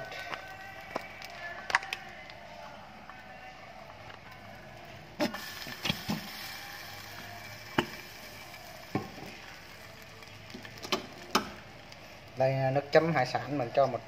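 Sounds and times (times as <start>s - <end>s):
frying pan hissing: 4.4s - 13.7s.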